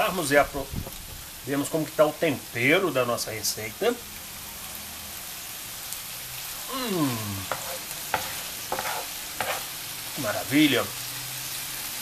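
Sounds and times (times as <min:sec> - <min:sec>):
food sizzling in a pan: 0:00.0 - 0:12.0
falling vocal sound: 0:06.6 - 0:07.5
wooden spoon knocking and scraping: 0:07.5 - 0:09.7.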